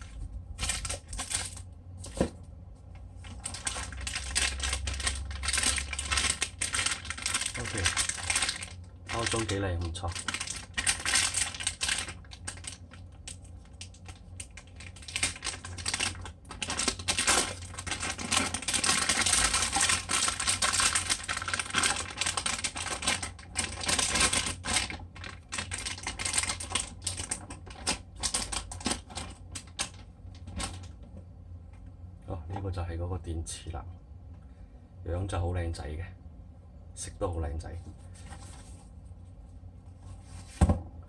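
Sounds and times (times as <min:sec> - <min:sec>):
plastic bag crinkling: 0:00.0 - 0:02.3, 0:03.2 - 0:31.0.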